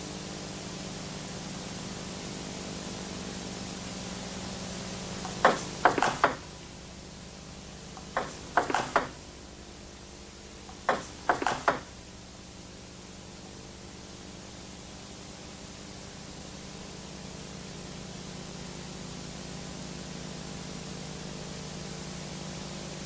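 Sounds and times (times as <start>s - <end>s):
tape hiss: 0.0s - 23.0s
table tennis ball clicking: 5.2s - 6.4s, 8.0s - 9.2s, 10.7s - 11.9s.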